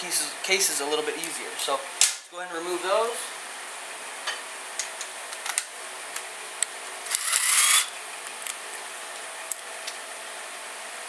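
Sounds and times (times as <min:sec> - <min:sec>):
cordless power driver spinning: 0:07.1 - 0:08.0.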